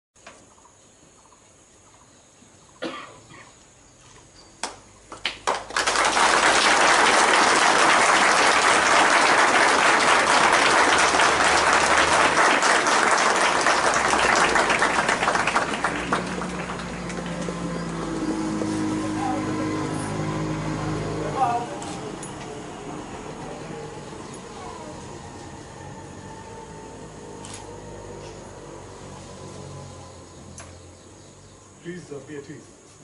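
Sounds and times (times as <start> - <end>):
crowd applauding: 5.1 - 18.6.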